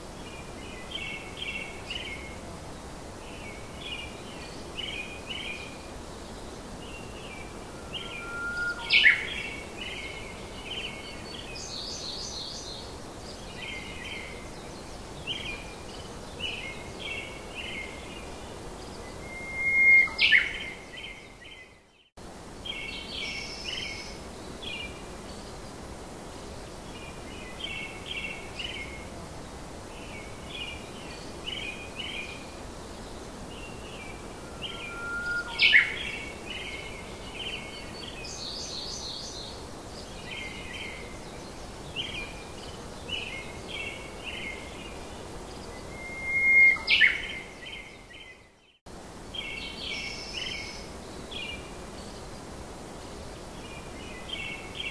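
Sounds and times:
steady background hiss: 0.0s - 54.9s
sweeping bird calls: 6.9s - 12.7s, 19.0s - 21.2s, 33.5s - 39.4s, 45.6s - 48.4s.

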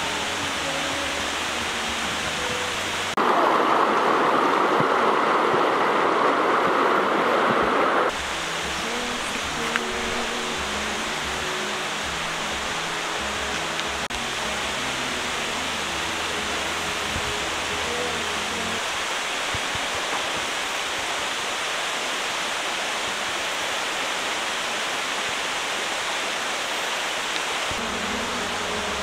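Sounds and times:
flowing water rushing: 0.0s - 29.0s
soft background music: 8.2s - 18.9s.

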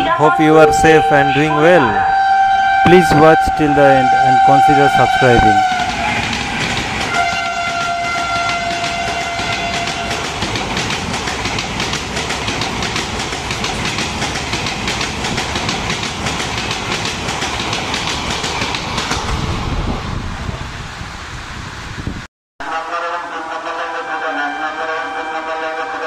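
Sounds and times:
train horn: 0.0s - 6.5s, 7.1s - 10.3s, 22.6s - 26.0s
train wheels clattering: 5.2s - 19.4s.

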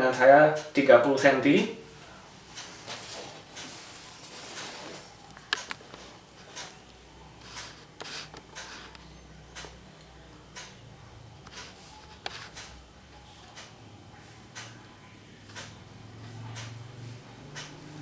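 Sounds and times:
sharp clicks: 17.5s - 17.8s.

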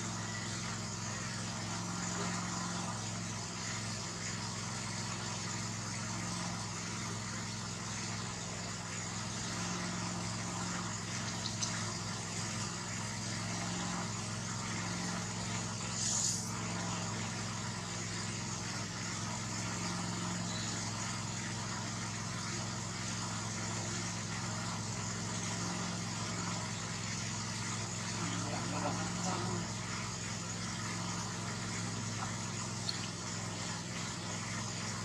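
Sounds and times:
low motor hum: 0.0s - 35.0s
brief hiss: 15.9s - 16.5s.

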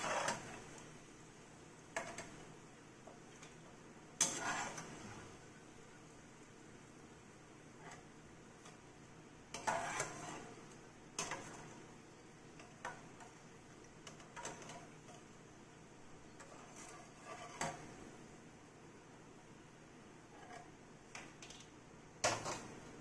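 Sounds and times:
metal spoon clinking and scraping: 9.5s - 10.5s.

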